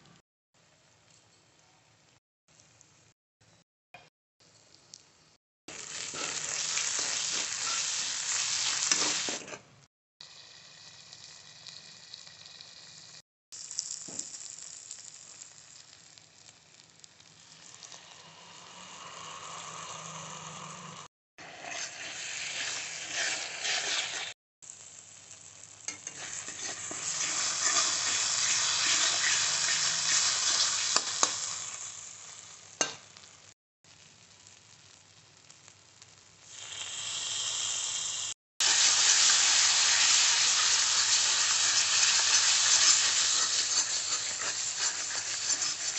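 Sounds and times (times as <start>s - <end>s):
masala sizzling in oil: 4.4s - 45.9s
spatula scraping a pan: 6.0s - 9.7s, 21.4s - 24.4s, 25.9s - 31.4s, 42.0s - 45.9s.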